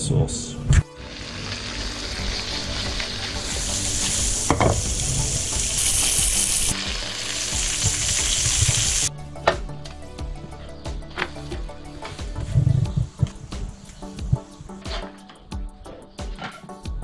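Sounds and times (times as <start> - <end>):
fish sizzling in a frying pan: 1.0 - 9.1.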